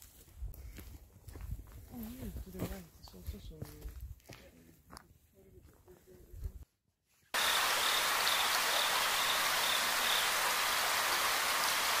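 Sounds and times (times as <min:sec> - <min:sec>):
steady hiss like rain: 0:07.4 - 0:12.0.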